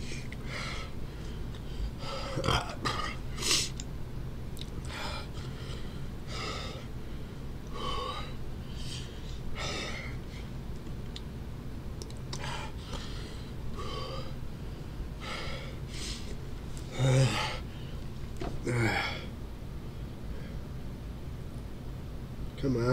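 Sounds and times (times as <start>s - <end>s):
man gasping and panting: 0.0s - 3.8s, 4.8s - 10.5s, 16.9s - 19.3s
steady low hum: 0.0s - 22.9s.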